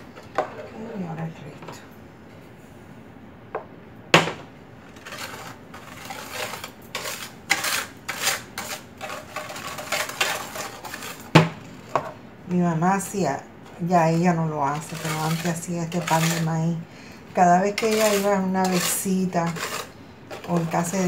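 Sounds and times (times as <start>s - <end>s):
whisk beating eggs in a bowl: 4.9s - 11.9s, 14.7s - 16.6s, 17.3s - 21.0s.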